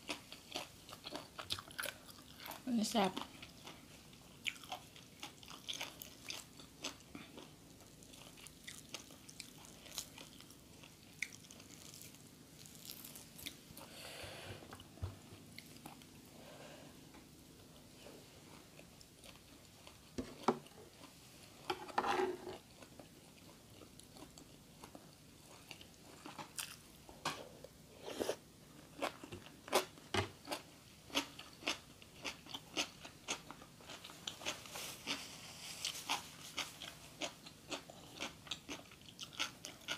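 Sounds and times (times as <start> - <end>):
person chewing crunchy food: 0.0 - 2.6, 3.2 - 13.9, 22.3 - 39.9.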